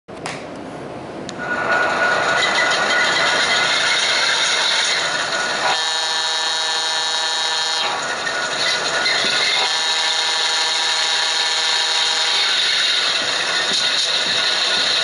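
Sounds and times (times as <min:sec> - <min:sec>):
model locomotive diesel running: 0:01.0 - 0:15.0
locomotive horn chord: 0:05.6 - 0:08.0, 0:09.6 - 0:12.6.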